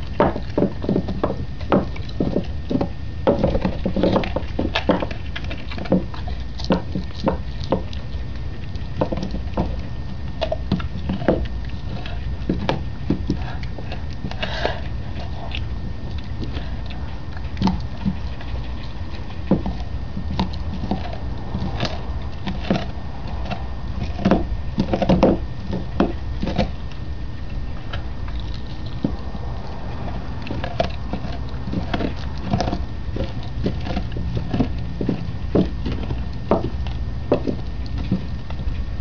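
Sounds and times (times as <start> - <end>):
dog crunching a bone: 0.0 - 39.0
low rumble: 9.6 - 39.0.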